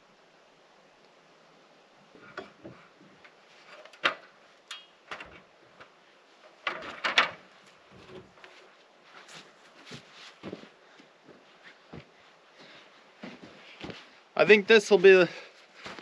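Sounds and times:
wood knocks and clunks: 2.2 - 4.4, 5.0 - 8.7, 9.8 - 10.7.

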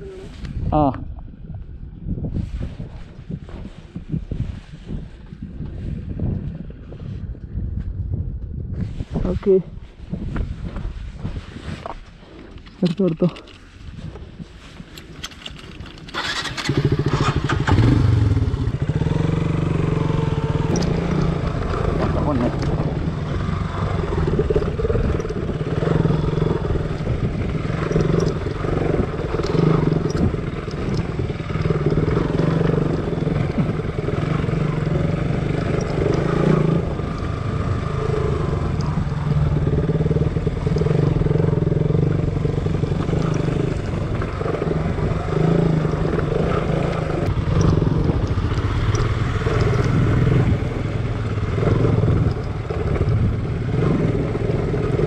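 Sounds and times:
small clicks and rattles: 14.9 - 16.8, 24.5 - 25.5, 26.9 - 33.8, 43.0 - 44.3, 45.8 - 50.1
motorcycle engine revving: 16.0 - 55.0.

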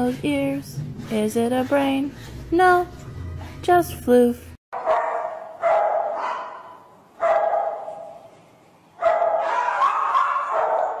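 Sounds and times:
dog barking long calls: 9.0 - 11.0.

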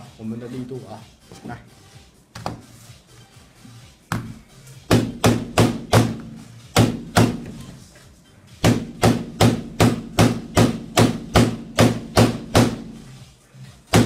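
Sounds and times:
hammer striking phone screen: 4.1 - 7.6, 8.6 - 13.0.

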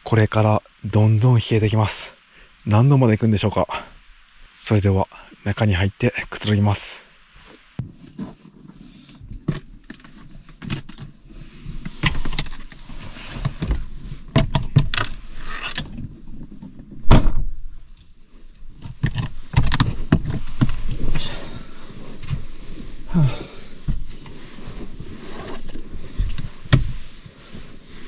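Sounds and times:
loud thump: 17.0 - 17.7.

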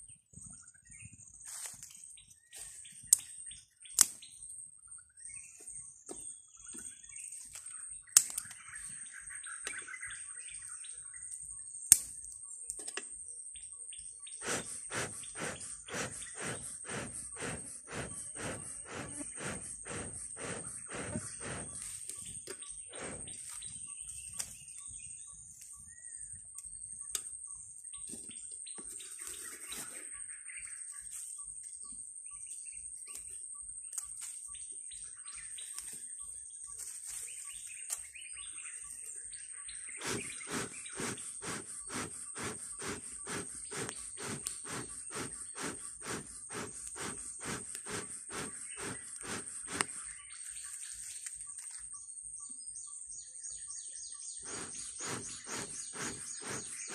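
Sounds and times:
bellows puffing air: 14.4 - 22.0, 22.9 - 23.5, 40.0 - 50.1, 54.4 - 56.9.

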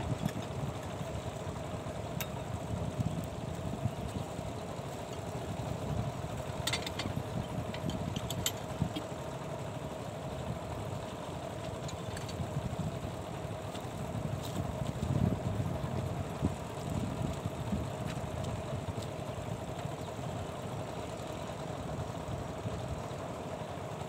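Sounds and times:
diesel engine driving water pump: 0.0 - 24.0.

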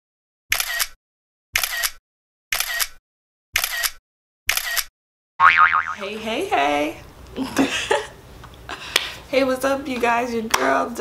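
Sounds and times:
camera shutter double click: 0.5 - 1.0, 1.6 - 3.0, 3.6 - 4.9.

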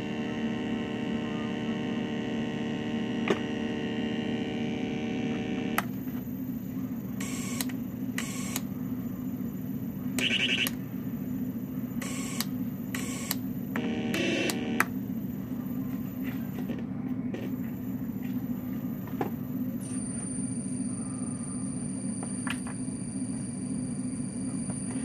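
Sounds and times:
electronic synth buzzing drone: 0.0 - 5.9, 10.2 - 10.8, 12.0 - 14.9.

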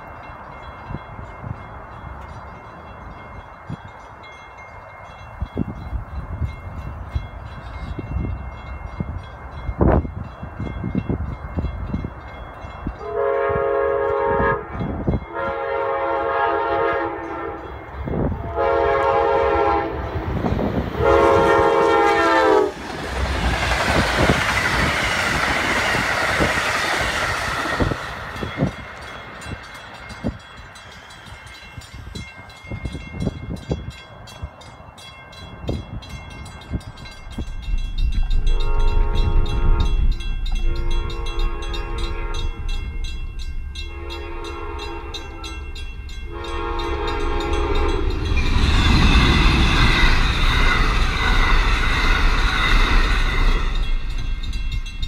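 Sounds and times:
train passing in a loud rush: 0.0 - 55.0
train horn blasts: 13.0 - 22.8, 38.2 - 43.0, 43.8 - 48.6
wheels clicking over rail joints: 21.6 - 38.6.

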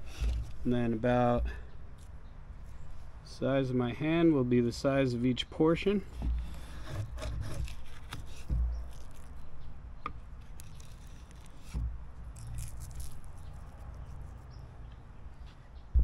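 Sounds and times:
dull thumps of handling: 0.0 - 1.6, 6.1 - 9.4.

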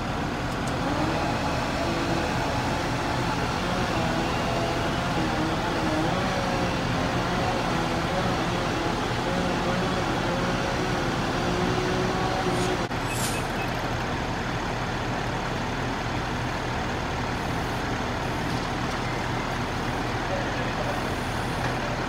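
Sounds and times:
diesel engines rumbling: 0.0 - 22.0
brief high hiss: 13.0 - 13.6.

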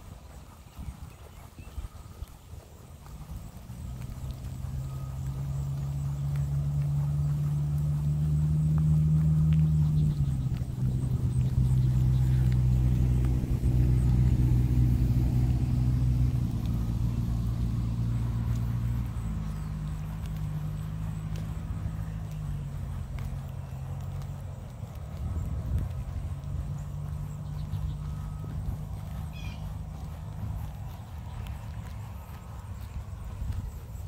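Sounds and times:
vehicle engine running: 0.0 - 34.0.

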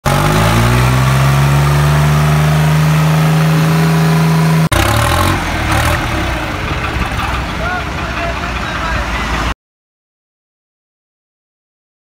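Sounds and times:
tractor diesel engine revving: 0.0 - 9.5.

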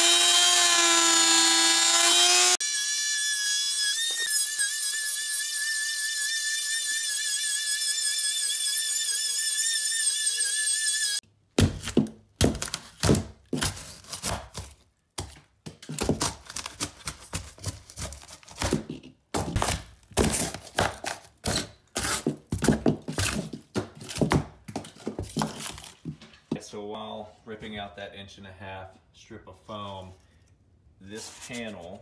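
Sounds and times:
high wavering whine: 2.6 - 11.2
hammer prying wood and foam: 11.6 - 25.9.

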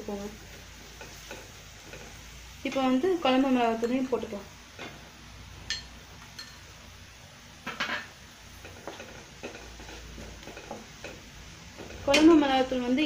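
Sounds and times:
oil sizzling: 0.0 - 13.0
spoon clinking against glass bowl: 5.7 - 6.6.

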